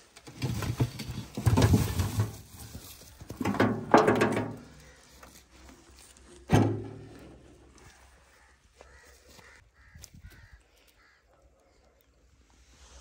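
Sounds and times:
metal tin scraping and knocking: 0:00.2 - 0:04.8
potatoes thudding into metal basin: 0:03.3 - 0:04.7.

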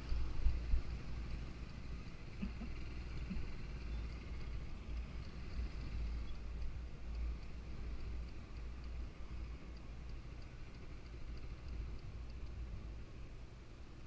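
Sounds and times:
wind rumble on microphone: 0:00.0 - 0:01.5
motorcycle engine and road noise: 0:00.0 - 0:14.0.

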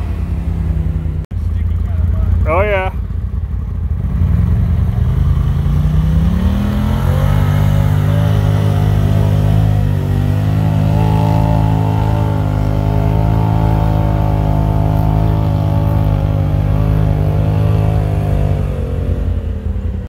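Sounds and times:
off-road vehicle engine at high revs: 0:00.0 - 0:20.0.

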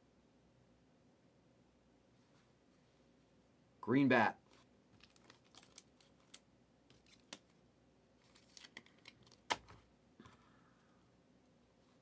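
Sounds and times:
trading cards clicking and rustling: 0:04.5 - 0:07.6, 0:08.2 - 0:09.8.

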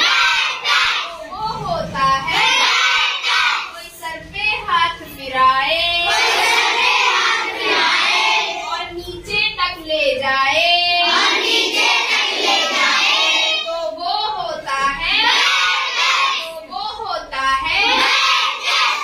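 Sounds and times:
children singing in chorus: 0:00.0 - 0:01.2, 0:02.3 - 0:03.7, 0:06.0 - 0:08.7, 0:11.0 - 0:13.7, 0:15.2 - 0:16.4, 0:17.8 - 0:19.0.

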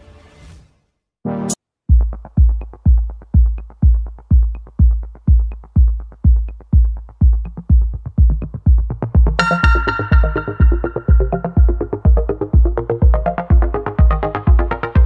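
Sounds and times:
electronic music with kick drum: 0:01.3 - 0:15.0
sustained synth notes: 0:09.4 - 0:12.8.

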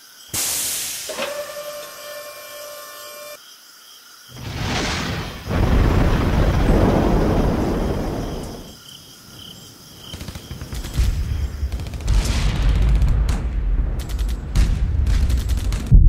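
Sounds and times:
rocket launch roar: 0:04.3 - 0:08.7
rumbling crackling explosion: 0:04.3 - 0:08.7, 0:10.6 - 0:16.0.

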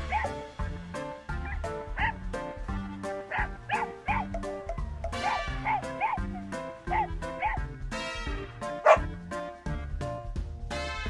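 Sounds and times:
puppies yipping: 0:00.0 - 0:00.4, 0:01.3 - 0:02.2, 0:03.3 - 0:07.7, 0:08.8 - 0:09.1
background music with steady beat: 0:00.0 - 0:11.0.

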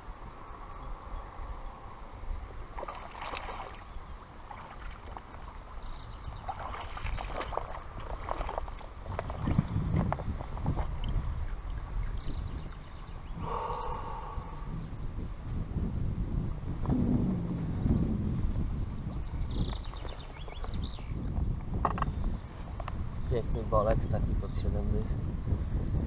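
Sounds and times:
footsteps wading through water: 0:02.7 - 0:12.8.

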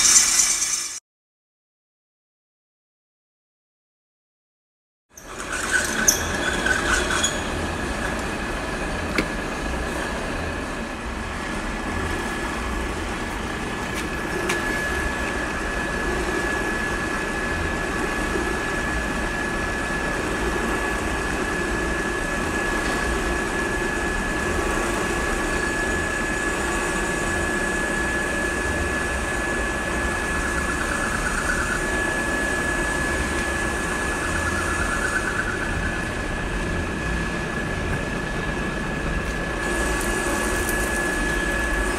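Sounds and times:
drill boring through steel: 0:00.0 - 0:01.0, 0:05.2 - 0:10.7, 0:39.5 - 0:41.9
thin high tone: 0:00.0 - 0:01.0.

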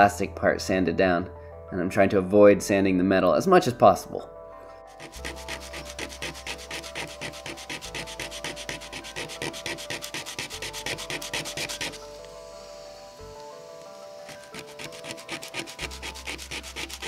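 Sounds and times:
plastic rubbed on sandpaper: 0:04.9 - 0:12.0, 0:14.1 - 0:17.0.

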